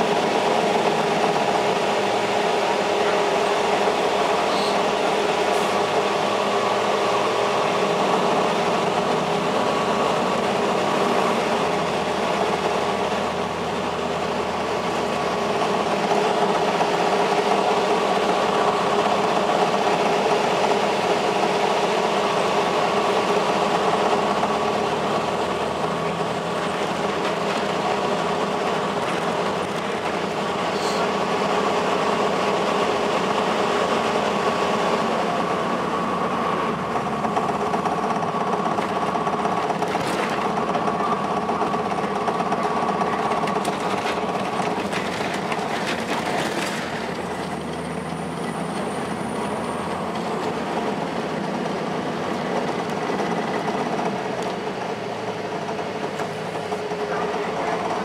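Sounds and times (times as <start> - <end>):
bus engine whining: 0.0 - 58.0
road and body noise: 22.2 - 58.0.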